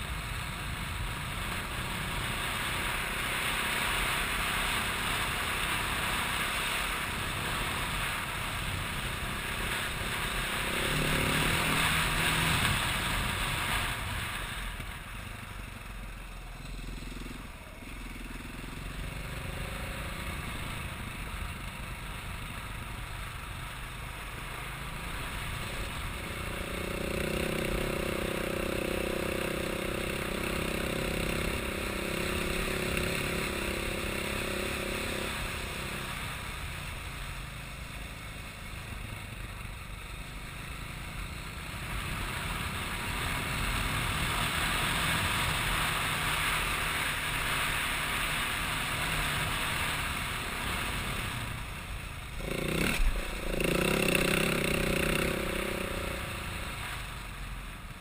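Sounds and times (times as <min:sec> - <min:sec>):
steady rushing noise: 0:00.0 - 0:58.0
engine running: 0:38.6 - 0:58.0
steady pitched drone: 0:52.2 - 0:57.2.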